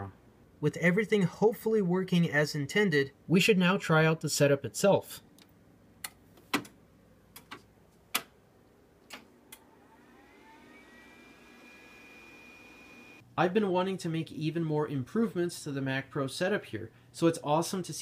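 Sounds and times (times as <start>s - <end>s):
computer fan whine: 9.2s - 13.2s.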